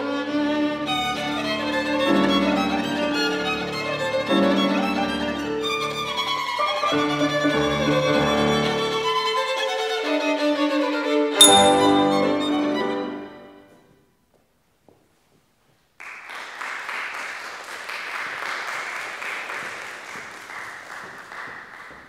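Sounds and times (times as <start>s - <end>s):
violin and piano chord: 0.7s - 6.2s, 11.4s - 13.6s
audience applause: 16.0s - 22.0s.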